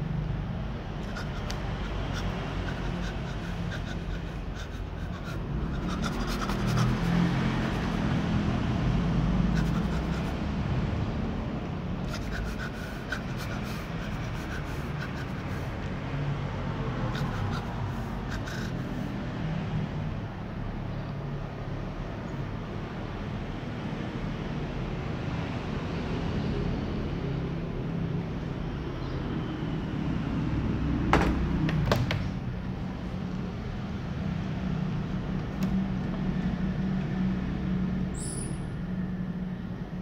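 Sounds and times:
kittens chewing clicks: 1.0s - 7.3s.

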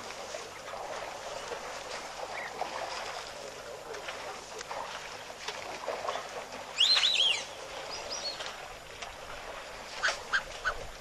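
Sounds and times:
bird calling: 6.8s - 8.5s, 10.0s - 10.9s.

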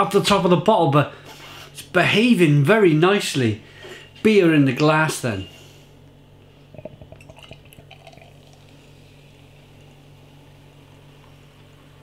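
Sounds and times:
low steady hum: 0.0s - 12.0s
beer pouring into glass: 6.7s - 10.3s.

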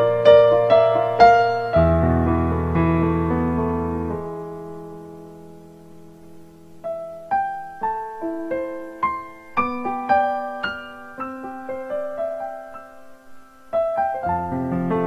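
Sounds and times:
slow piano melody: 0.0s - 15.0s.

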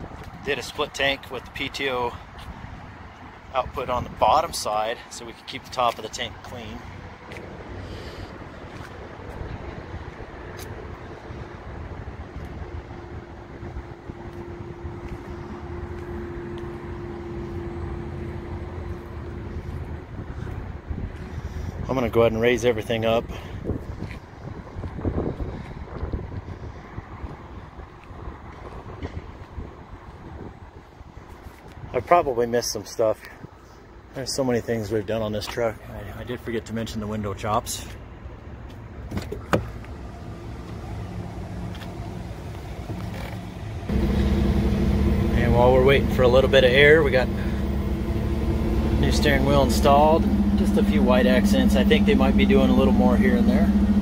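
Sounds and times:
diesel truck engine idling: 39.8s - 54.0s
air system building pressure: 43.8s - 54.0s.

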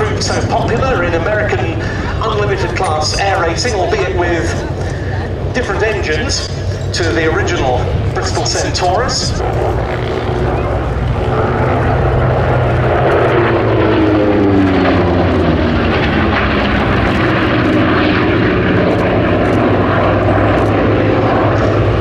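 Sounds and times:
propeller aircraft flying past: 0.0s - 22.0s.

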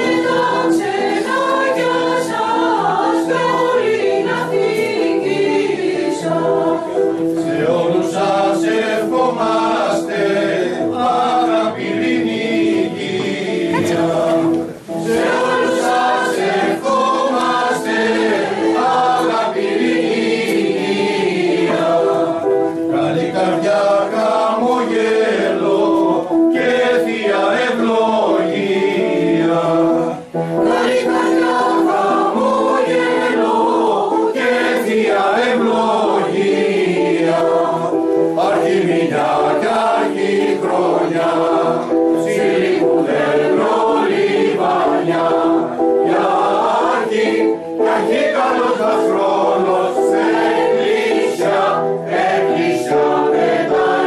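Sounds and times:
mixed choir singing: 0.0s - 54.0s.

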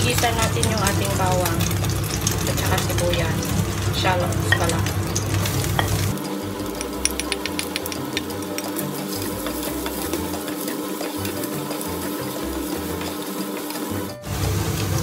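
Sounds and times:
garlic sizzling in oil: 0.0s - 15.0s
spatula tapping and scraping pan: 4.5s - 14.0s.

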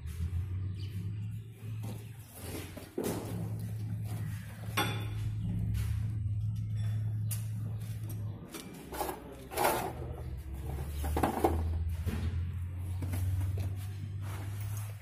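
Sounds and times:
steady low hum: 0.0s - 15.0s
metal clatter and knocks: 8.5s - 13.4s.

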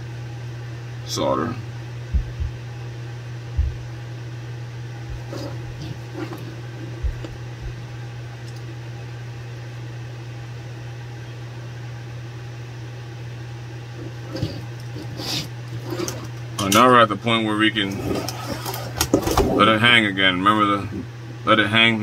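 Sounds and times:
low electrical hum: 0.0s - 22.0s
faint taps and clicks: 7.0s - 7.8s.

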